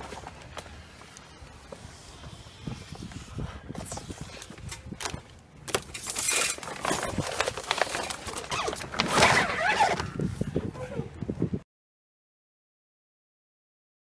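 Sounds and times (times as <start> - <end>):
plastic sheeting rustling: 5.9 - 10.0.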